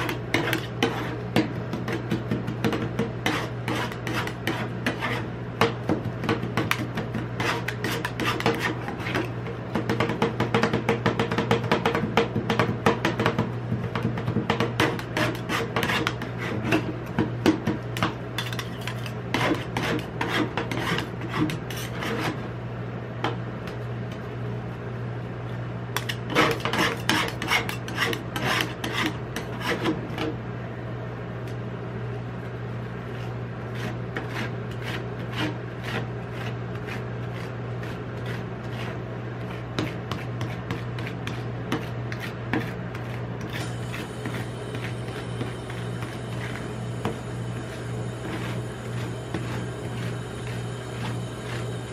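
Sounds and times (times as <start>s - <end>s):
spatula scraping cold plate: 0.0s - 10.2s, 14.5s - 17.0s, 18.0s - 22.5s, 26.0s - 30.3s, 33.0s - 51.9s
low machine hum: 0.0s - 51.9s.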